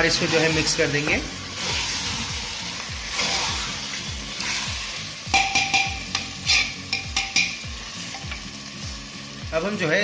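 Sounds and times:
masala sizzling: 0:00.0 - 0:10.0
metal spoon stirring: 0:04.3 - 0:08.4
spoon clinking on pot: 0:05.3 - 0:08.4.

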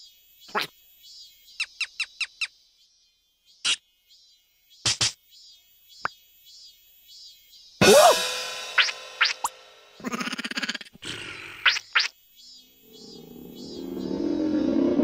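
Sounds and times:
faint high chirping: 0:08.8 - 0:15.0.

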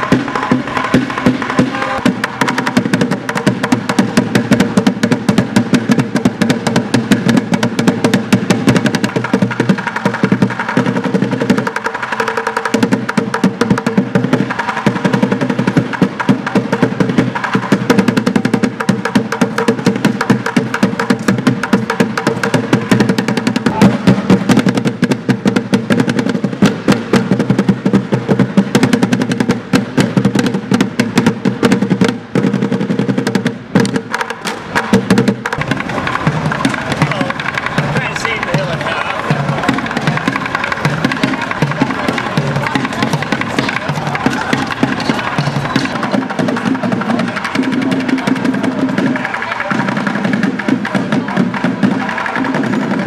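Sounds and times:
drumming on plastic buckets: 0:00.0 - 0:53.0.

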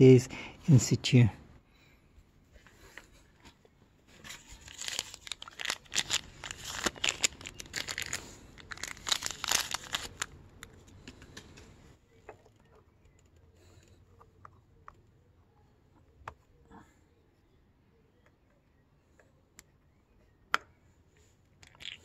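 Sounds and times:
close rustling and crackling: 0:02.4 - 0:14.6.

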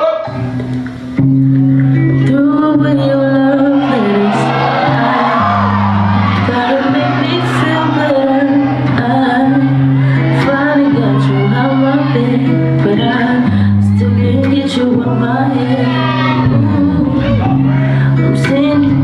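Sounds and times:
deep bass notes: 0:00.3 - 0:15.8
vocal line: 0:01.9 - 0:19.0
loud dance music: 0:03.2 - 0:12.5.

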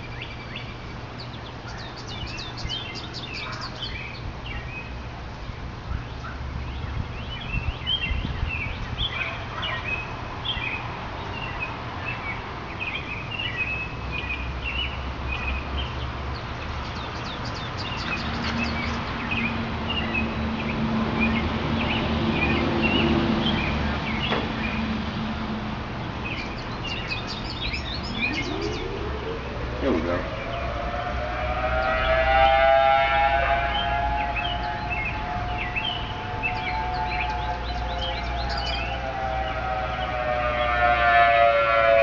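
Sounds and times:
songbirds chirping: 0:00.0 - 0:42.0
low outdoor rumble: 0:13.8 - 0:41.0
low hum: 0:24.5 - 0:40.9
warning siren winding up: 0:28.0 - 0:42.0.

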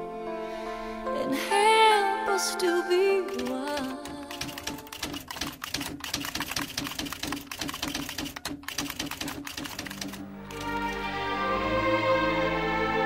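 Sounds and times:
keyboard key clicks: 0:03.3 - 0:11.0.

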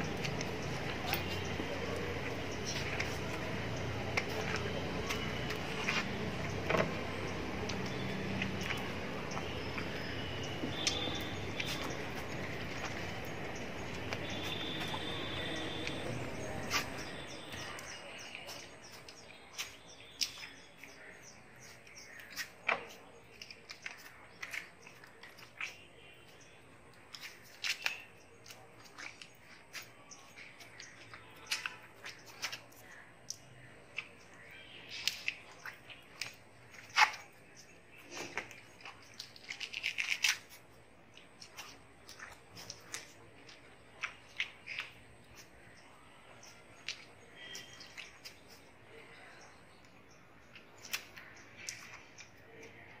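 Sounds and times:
watermelon slice tearing: 0:00.0 - 0:45.7
crunchy chewing of watermelon: 0:00.0 - 0:53.0
small birds chirping: 0:00.0 - 0:53.0
wet bites and slurps of watermelon: 0:34.8 - 0:45.5.

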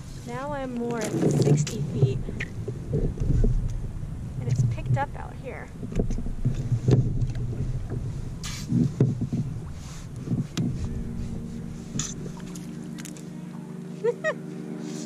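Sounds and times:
steady low hum: 0:00.0 - 0:15.0
water splashes: 0:00.0 - 0:15.0
fishing gear knocks and rustles: 0:05.8 - 0:13.2.

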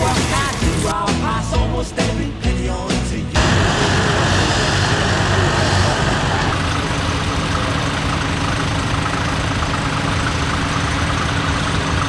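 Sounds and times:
diesel tractor engine running: 0:00.0 - 0:12.0
low engine hum: 0:00.0 - 0:12.0.

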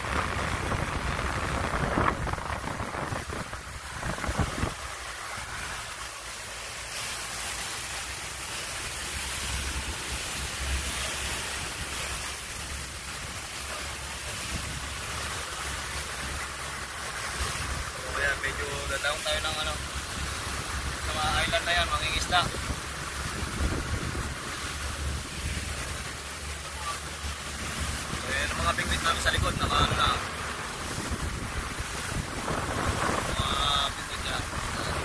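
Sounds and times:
wind on microphone: 0:00.0 - 0:05.6, 0:22.1 - 0:25.9, 0:27.6 - 0:35.0
water rushing along a boat hull: 0:00.0 - 0:35.0.

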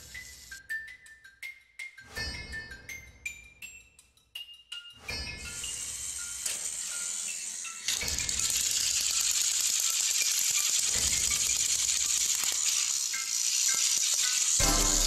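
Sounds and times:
toy train motors rattling: 0:00.0 - 0:00.6, 0:05.4 - 0:15.0.

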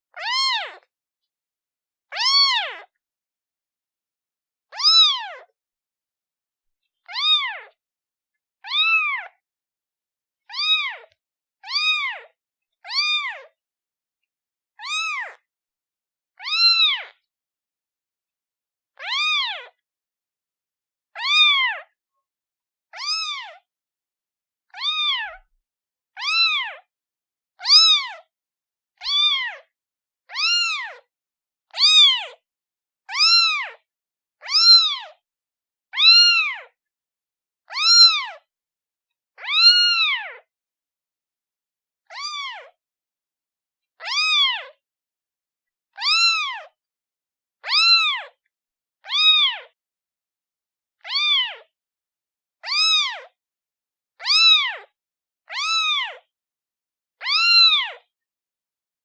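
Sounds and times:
kitten meowing: 0:00.1 - 0:00.9, 0:02.1 - 0:02.9, 0:04.7 - 0:05.5, 0:07.0 - 0:07.8, 0:08.6 - 0:09.4, 0:10.5 - 0:13.5, 0:14.8 - 0:15.5, 0:16.4 - 0:17.2, 0:19.0 - 0:19.8, 0:21.2 - 0:21.9, 0:22.9 - 0:23.6, 0:24.7 - 0:25.5, 0:26.2 - 0:26.9, 0:27.6 - 0:28.3, 0:29.0 - 0:29.7, 0:30.3 - 0:31.1, 0:31.7 - 0:32.4, 0:33.1 - 0:33.8, 0:34.4 - 0:35.2, 0:36.0 - 0:36.8, 0:37.7 - 0:38.5, 0:39.4 - 0:40.5, 0:42.1 - 0:42.8, 0:44.0 - 0:44.8, 0:45.9 - 0:46.8, 0:47.6 - 0:48.4, 0:49.0 - 0:49.8, 0:51.0 - 0:51.7, 0:52.6 - 0:53.4, 0:54.2 - 0:54.9, 0:55.5 - 0:56.3, 0:57.2 - 0:58.1.

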